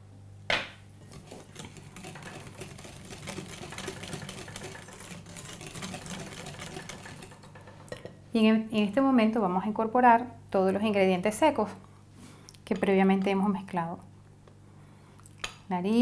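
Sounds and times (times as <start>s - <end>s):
whisk clattering in glass bowl: 1.1s - 8.1s.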